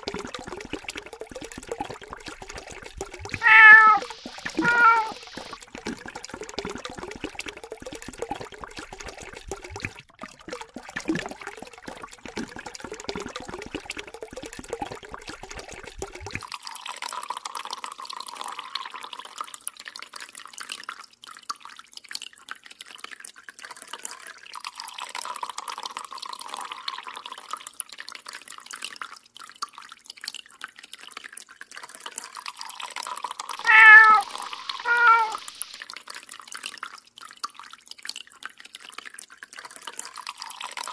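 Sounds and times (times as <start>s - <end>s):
water trickling from tap: 0.0s - 40.9s
cat meowing: 3.4s - 5.3s, 33.6s - 35.5s.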